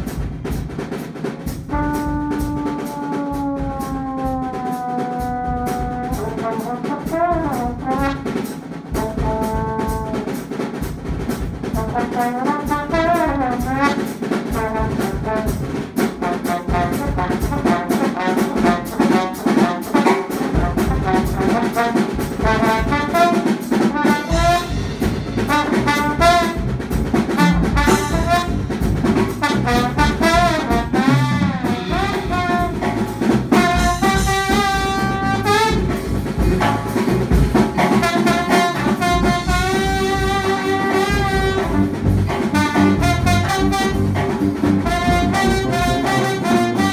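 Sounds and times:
electric bass: 0:00.0 - 0:00.7, 0:24.3 - 0:46.9
drum kit groove: 0:00.0 - 0:46.9
trombone and saxophones: 0:01.5 - 0:10.6, 0:11.6 - 0:46.9.

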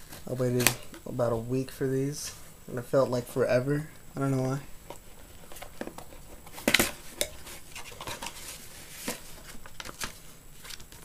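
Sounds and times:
paper sheet rustling: 0:05.2 - 0:11.0.

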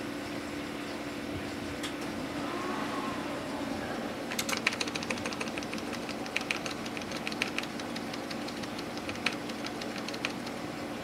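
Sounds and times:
steady low hum: 0:00.0 - 0:11.0
computer keyboard keys clicking: 0:04.3 - 0:10.6.

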